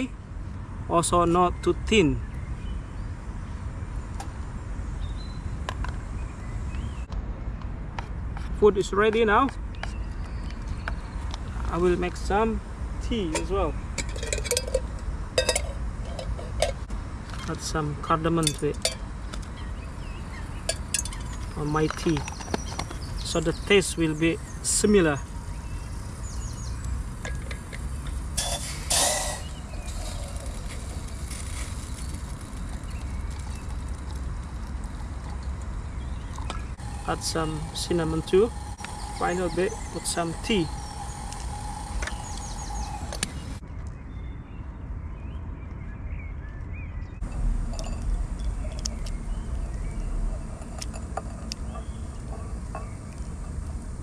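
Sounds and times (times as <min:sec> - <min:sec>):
steady low rumble: 0:10.8 - 0:43.6, 0:47.2 - 0:54.0
wooden spoon scraping steel pot: 0:13.3 - 0:16.8, 0:27.3 - 0:32.9
thick pudding pouring: 0:28.2 - 0:43.0
short rasping hisses: 0:28.4 - 0:30.2
low rumble: 0:47.2 - 0:54.0.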